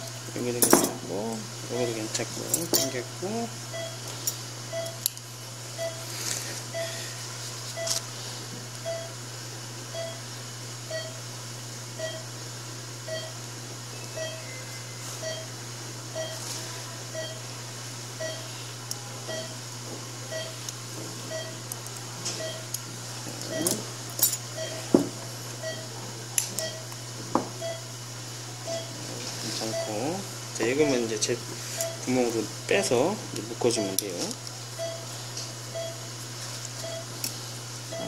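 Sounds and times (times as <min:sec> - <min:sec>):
steady low hum: 0:00.0 - 0:38.0
patient monitor beeping: 0:01.7 - 0:04.0, 0:04.7 - 0:05.0, 0:05.8 - 0:06.1, 0:06.7 - 0:07.2, 0:07.8 - 0:08.0, 0:08.8 - 0:09.2, 0:09.9 - 0:10.2, 0:10.9 - 0:11.2, 0:12.0 - 0:12.3, 0:13.0 - 0:13.4, 0:14.0 - 0:15.5, 0:16.1 - 0:16.4, 0:17.1 - 0:17.5, 0:18.2 - 0:18.5, 0:19.3 - 0:19.6, 0:20.3 - 0:20.6, 0:21.3 - 0:21.7, 0:22.4 - 0:22.7, 0:23.4 - 0:23.8, 0:24.6 - 0:24.9, 0:25.6 - 0:26.0, 0:26.6 - 0:26.9, 0:27.6 - 0:27.9, 0:28.6 - 0:29.0, 0:29.6 - 0:32.4, 0:33.6 - 0:36.1, 0:36.8 - 0:37.1.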